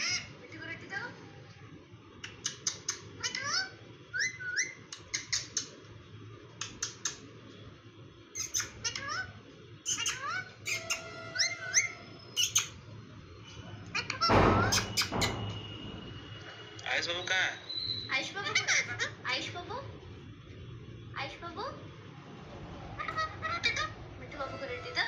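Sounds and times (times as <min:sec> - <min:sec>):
parakeet chattering: 0:00.0 - 0:00.4, 0:02.2 - 0:05.8, 0:06.6 - 0:07.2, 0:08.3 - 0:12.9, 0:13.6 - 0:15.6, 0:17.1 - 0:19.7, 0:22.9 - 0:25.0.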